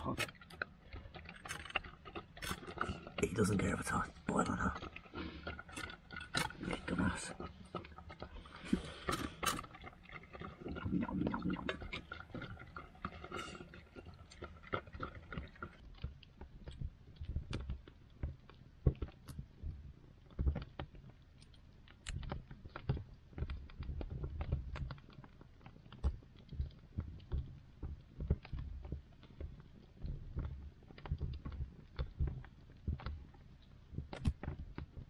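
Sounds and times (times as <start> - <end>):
dog eating from a pan: 0.0 - 15.8
wood fire crackling: 0.0 - 35.0.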